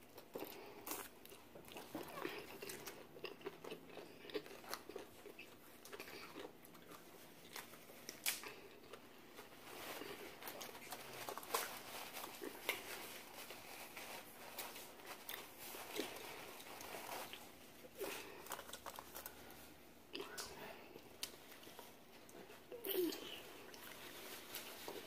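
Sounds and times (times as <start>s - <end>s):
chewing and mouth smacks: 0.1s - 9.1s
paper napkin crinkling: 9.2s - 19.8s, 23.3s - 25.0s.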